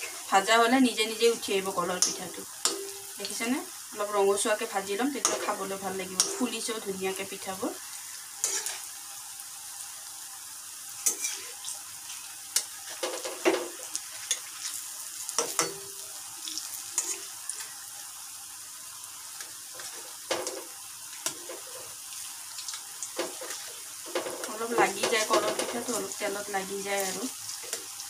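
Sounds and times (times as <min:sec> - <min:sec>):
food sizzling in hot oil: 0:00.0 - 0:28.0
metal spatula scraping pan: 0:08.4 - 0:08.9, 0:11.0 - 0:11.8, 0:17.0 - 0:17.3.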